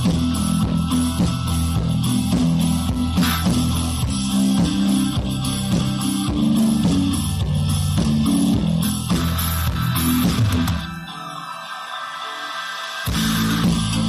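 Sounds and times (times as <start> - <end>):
instrumental background music: 0.0 - 14.0.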